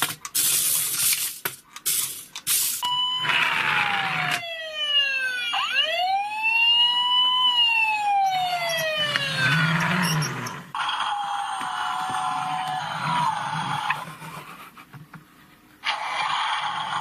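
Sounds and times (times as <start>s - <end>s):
toy siren wailing: 2.8s - 14.0s.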